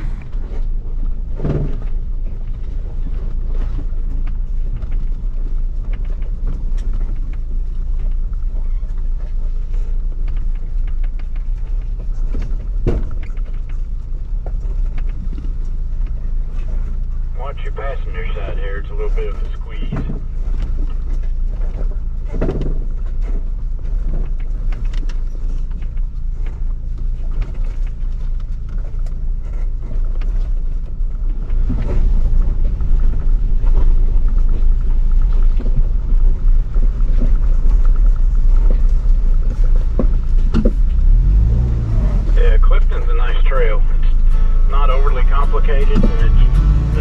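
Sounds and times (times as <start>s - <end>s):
engine and tyres rumbling: 0.0s - 47.0s.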